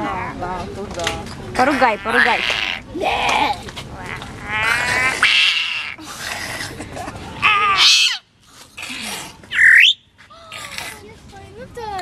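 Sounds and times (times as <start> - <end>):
parrot squawking and whistling: 7.8 - 8.2, 9.5 - 10.0.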